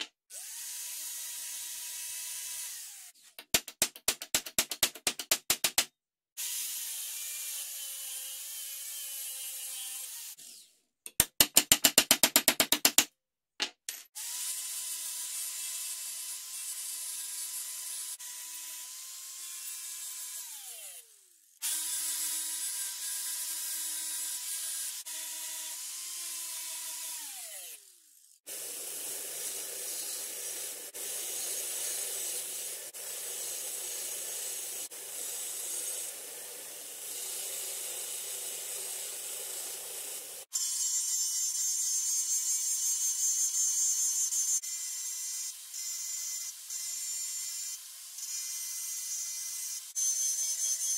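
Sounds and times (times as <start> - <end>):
angle grinder grinding steel: 17.1 - 50.9.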